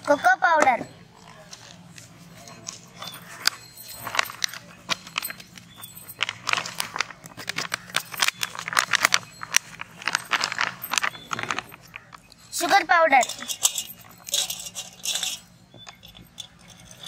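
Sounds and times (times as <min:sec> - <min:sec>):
plastic packet crinkling: 0:03.5 - 0:12.4.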